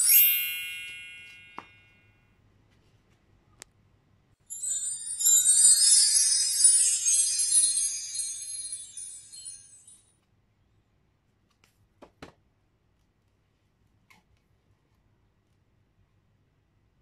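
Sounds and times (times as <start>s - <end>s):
chiming jingle: 0.0s - 2.0s, 4.5s - 10.0s.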